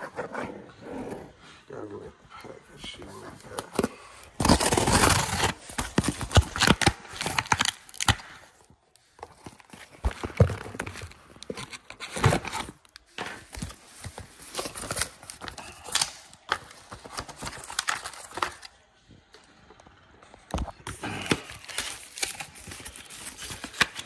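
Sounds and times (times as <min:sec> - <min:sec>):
cardboard tearing: 0:03.4 - 0:18.7, 0:20.8 - 0:24.0
packaging crinkling: 0:03.5 - 0:18.8, 0:20.9 - 0:24.0.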